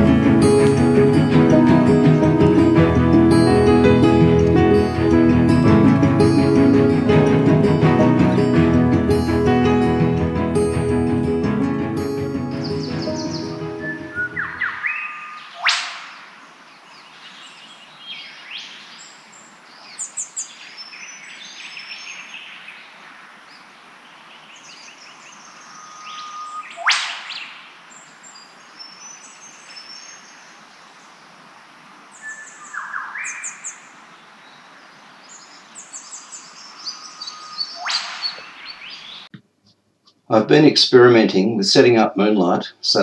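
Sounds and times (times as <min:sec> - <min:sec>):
sharp sweeping bird call: 0:12.5 - 0:16.4, 0:25.2 - 0:27.8, 0:35.8 - 0:39.3
birdsong chirps and whistles: 0:12.6 - 0:30.4, 0:32.2 - 0:39.3.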